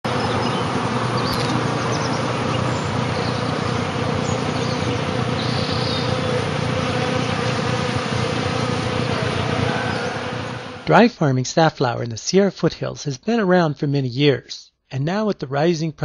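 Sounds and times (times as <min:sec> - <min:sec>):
bees buzzing: 0:00.0 - 0:11.1.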